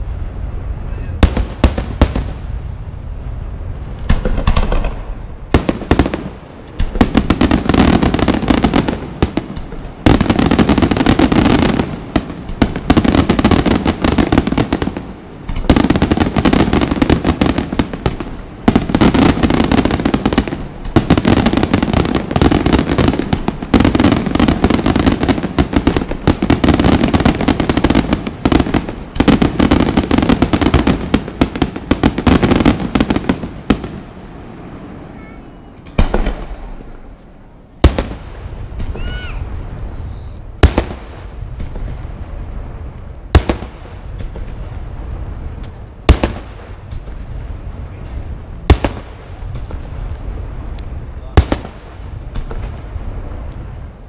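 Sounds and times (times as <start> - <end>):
firework bangs and crackling: 0.0 - 54.0.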